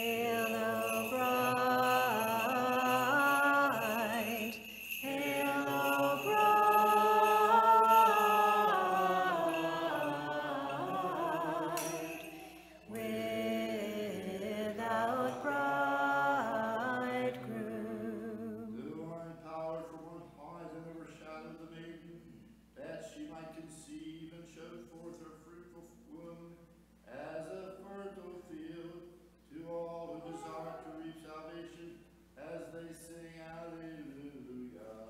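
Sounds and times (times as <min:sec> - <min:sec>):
voices singing liturgical chant: 0:00.0 - 0:19.7.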